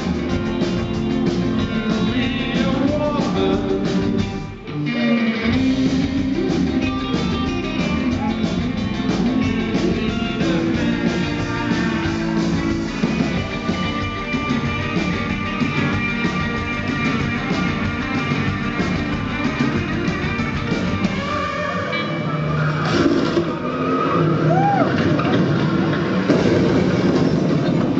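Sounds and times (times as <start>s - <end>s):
live rock band playing: 0.0s - 22.4s
strummed electric guitar: 0.0s - 23.6s.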